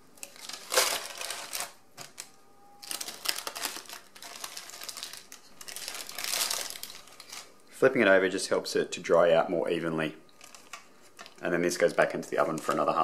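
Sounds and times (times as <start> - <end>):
baking paper crinkling: 0.2 - 7.6, 10.4 - 13.0.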